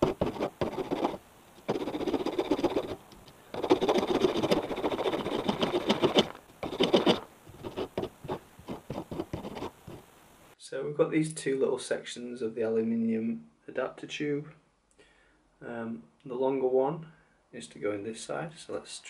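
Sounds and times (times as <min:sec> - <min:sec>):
hand file rasping on metal: 0:00.0 - 0:10.0.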